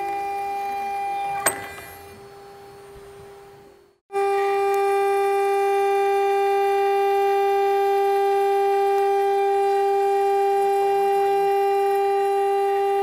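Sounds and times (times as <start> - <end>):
router spindle milling aluminium: 1.1 - 3.0.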